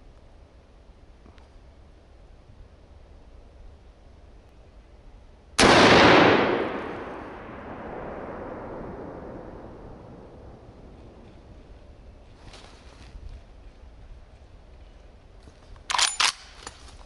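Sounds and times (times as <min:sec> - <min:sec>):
rifle shot with echo: 0:05.6 - 0:10.8.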